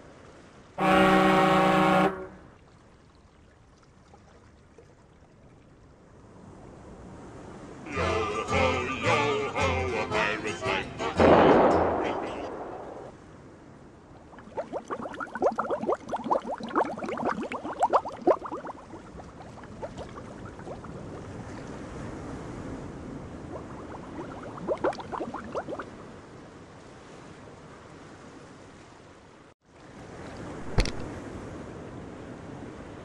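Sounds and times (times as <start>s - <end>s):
water bubbling and gurgling: 14.2s - 21.9s, 23.2s - 26.0s
water washing: 14.3s - 21.8s, 23.3s - 25.9s.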